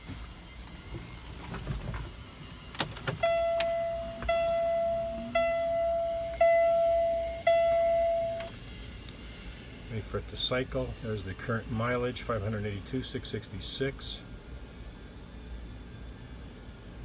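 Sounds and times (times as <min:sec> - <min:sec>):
ignition key clicks: 0:02.8 - 0:04.7
dashboard warning buzzer beeping: 0:02.8 - 0:08.6.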